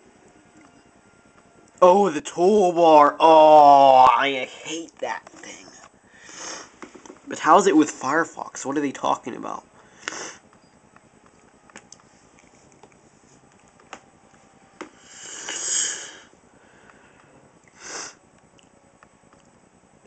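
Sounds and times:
person breathing: 6.1s - 6.8s, 9.8s - 10.5s, 14.9s - 18.2s
person sniffing: 6.2s - 6.8s, 9.9s - 10.4s, 15.0s - 16.3s, 17.7s - 18.2s.

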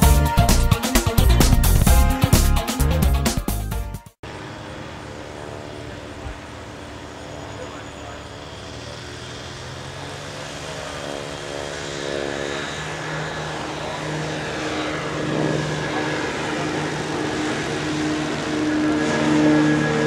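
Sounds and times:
electric propeller motors humming: 4.2s - 20.0s.

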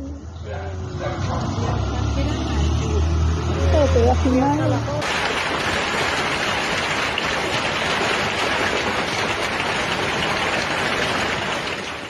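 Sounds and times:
hail pelting water and grass: 5.0s - 12.0s.

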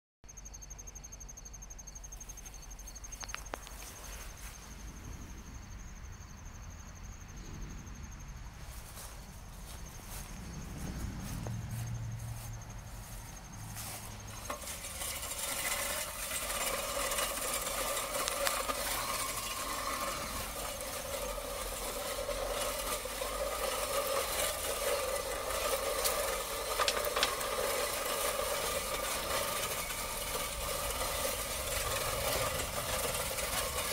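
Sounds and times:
high insect trill: 0.3s - 33.9s
reel mower whirring over grass: 2.0s - 5.4s, 8.5s - 33.9s
mower blades clicking: 12.7s - 33.9s.

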